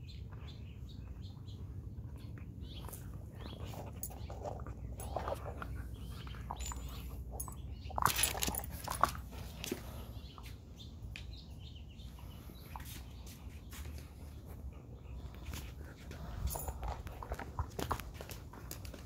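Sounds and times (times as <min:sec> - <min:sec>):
dog chewing a ball: 0:01.8 - 0:10.3, 0:15.4 - 0:19.0.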